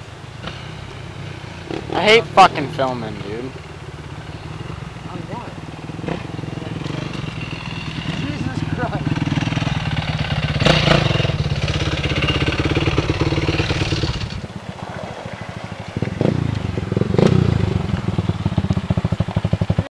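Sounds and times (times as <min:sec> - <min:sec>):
off-road engines revving: 0:00.0 - 0:19.9.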